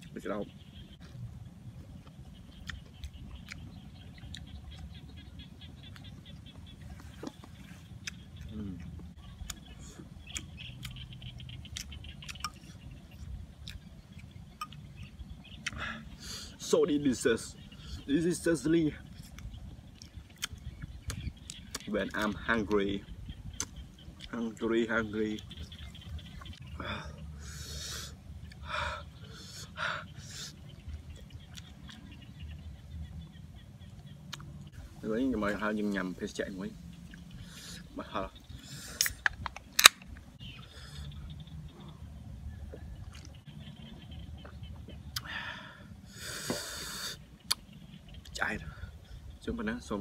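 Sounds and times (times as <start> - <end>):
wet chewing and lip smacking: 1.8 - 15.8, 19.1 - 22.5, 23.5 - 24.6, 28.4 - 32.7, 33.8 - 34.8, 42.6 - 45.3, 46.4 - 48.4
small mouth clicks: 7.9 - 12.8, 19.2 - 22.3, 23.5 - 24.4, 34.3 - 34.5, 38.7 - 39.9, 46.3 - 47.7.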